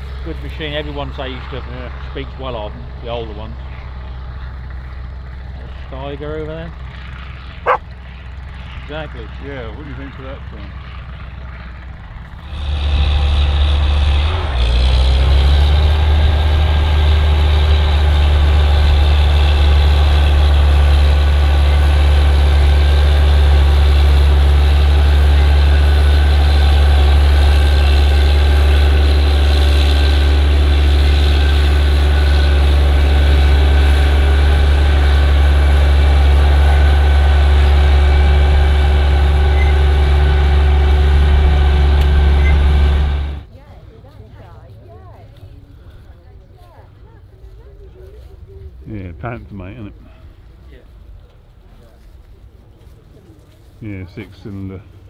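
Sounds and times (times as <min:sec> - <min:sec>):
tractor diesel engine drone: 0:00.0 - 0:55.0.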